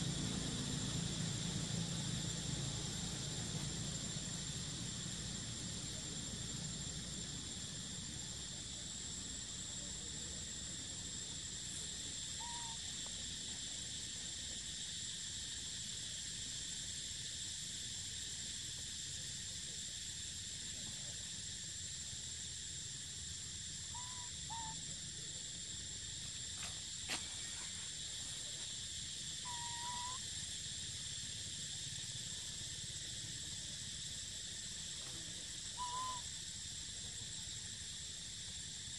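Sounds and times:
high-pitched insect drone: 0:00.0 - 0:38.9
soft hoots: 0:12.4 - 0:12.8, 0:23.9 - 0:24.8, 0:29.4 - 0:30.2, 0:35.8 - 0:36.2.

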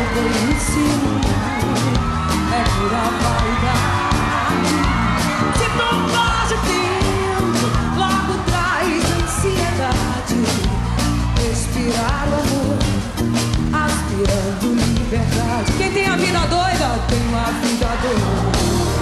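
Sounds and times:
live band playing upbeat pop: 0:00.0 - 0:19.0
person singing: 0:00.0 - 0:19.0
steady drum beat: 0:00.0 - 0:19.0.

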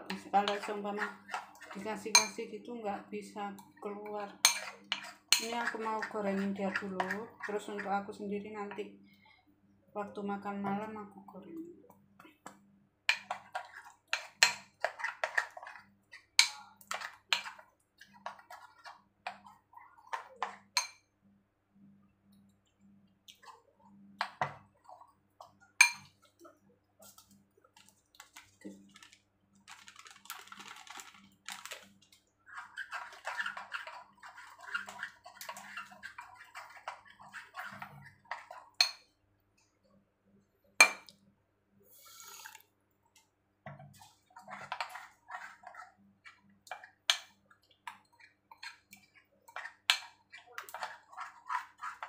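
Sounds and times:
batter sloshing in bowl: 0:27.0 - 0:38.8.

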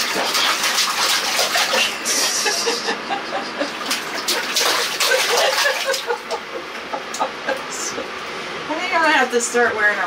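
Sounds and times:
water splashing in a bathtub: 0:00.0 - 0:02.9, 0:03.6 - 0:06.4.

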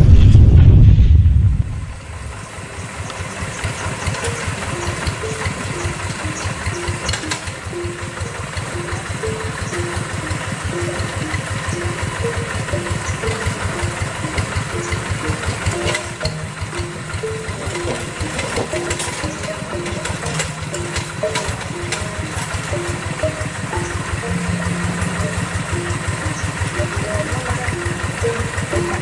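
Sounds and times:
diesel engine running: 0:00.0 - 0:29.0.

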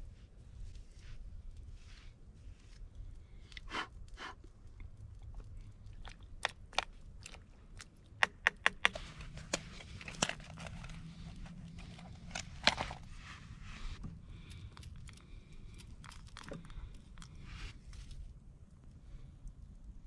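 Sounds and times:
sharp crunchy clicks and knocks: 0:04.5 - 0:13.0
soft handling rustles: 0:08.9 - 0:18.4.

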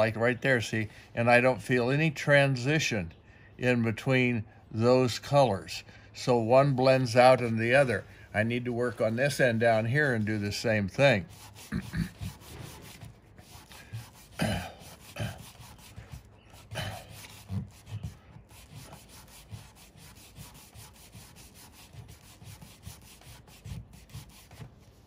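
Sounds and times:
sanding block rubbing on metal panel: 0:08.4 - 0:25.0.

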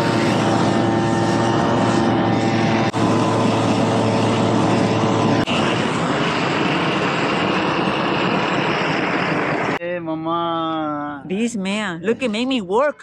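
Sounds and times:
roofing torch flame roaring: 0:00.0 - 0:09.8.

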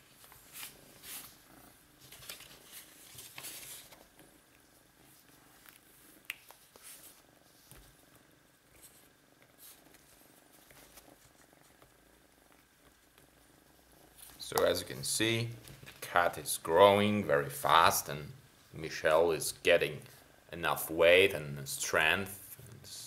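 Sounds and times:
rustling of fur and paper: 0:00.0 - 0:01.4, 0:02.0 - 0:04.2, 0:06.4 - 0:08.0
cat purring: 0:00.0 - 0:23.0.

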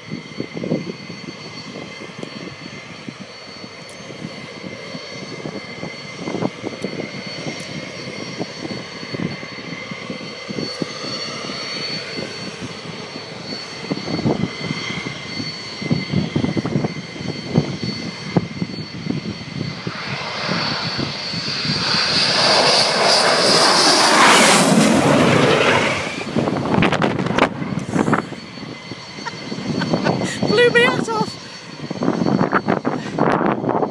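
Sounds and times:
jet engines high whine: 0:00.0 - 0:33.9.

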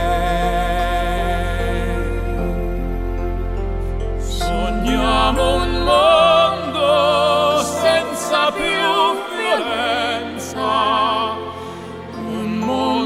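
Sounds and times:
operatic singing: 0:00.0 - 0:03.5, 0:04.2 - 0:13.0
orchestral accompaniment: 0:02.6 - 0:13.0.

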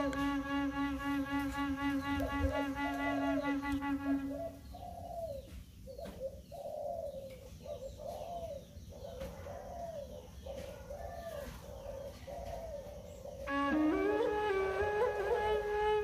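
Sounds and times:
music: 0:00.0 - 0:04.4, 0:13.5 - 0:16.0
doves cooing: 0:00.0 - 0:16.0.

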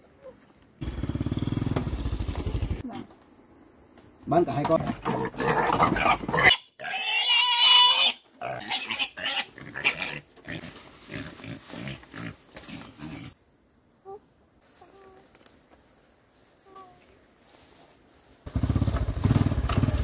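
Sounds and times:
pig grunting: 0:04.8 - 0:07.4
pig squealing: 0:05.0 - 0:10.7.

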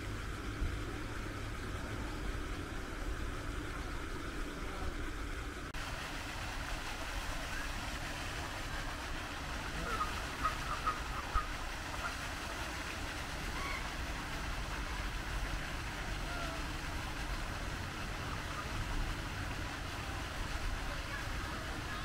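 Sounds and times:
outdoor rumble and hiss: 0:00.0 - 0:22.0.

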